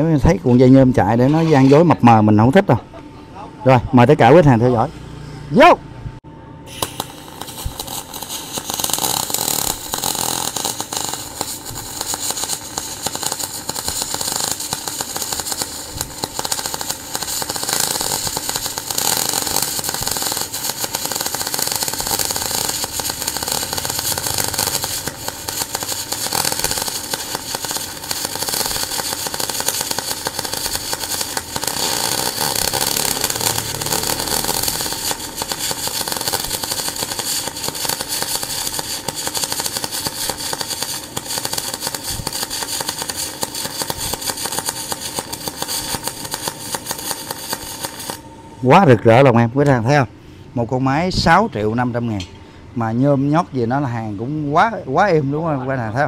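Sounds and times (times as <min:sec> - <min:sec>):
welding arc crackling hiss: 0:06.7 - 0:48.8.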